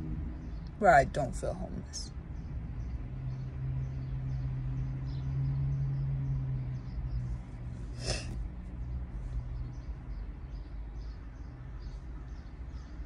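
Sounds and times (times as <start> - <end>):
person sniffing: 8.0 - 8.4.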